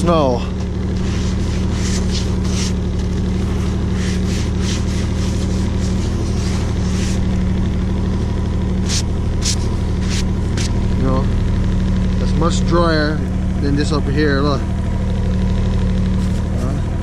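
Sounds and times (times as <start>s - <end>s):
snowmobile engine idling: 0.0s - 17.0s
gloved hand rubbing snow on seat: 0.7s - 7.6s, 8.7s - 11.0s, 16.2s - 16.6s.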